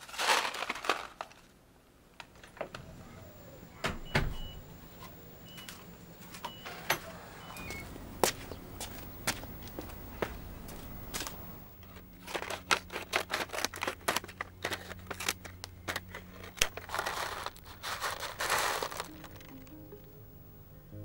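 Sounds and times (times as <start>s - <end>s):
packet rustling: 0.0s - 1.6s, 11.2s - 19.8s
scissors snipping plastic packet: 11.9s - 19.6s
soft background music: 18.7s - 21.0s.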